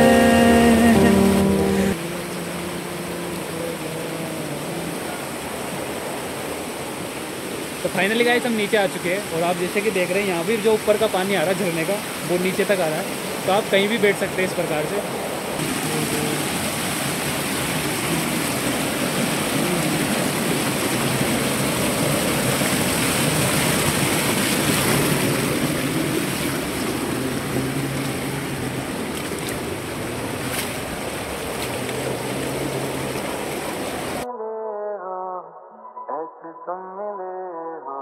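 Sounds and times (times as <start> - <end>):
music: 0.0 - 2.0
stream rushing over rocks: 0.0 - 34.3.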